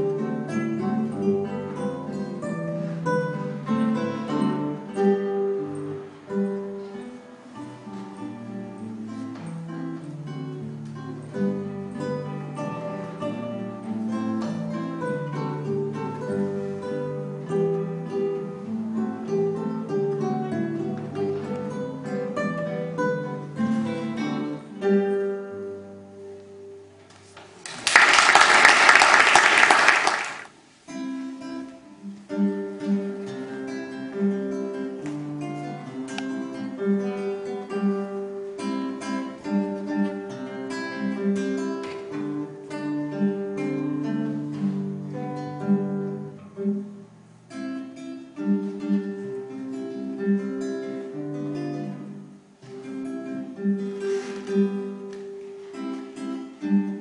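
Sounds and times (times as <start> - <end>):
solo classical guitar: 0.0 - 27.9, 30.3 - 57.0
classical guitar duet: 0.0 - 57.0
applause: 27.6 - 30.6.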